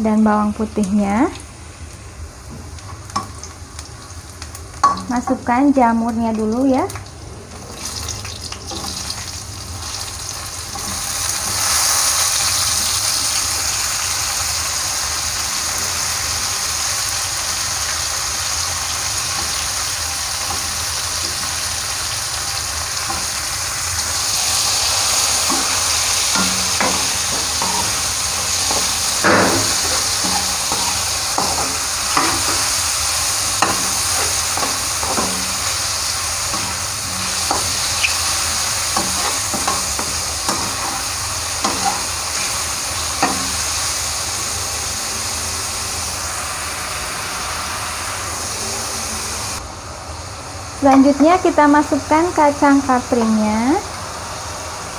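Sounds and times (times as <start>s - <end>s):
mushrooms sizzling in oil: 0.0s - 54.9s
metal spatula scraping wok: 24.2s - 43.7s.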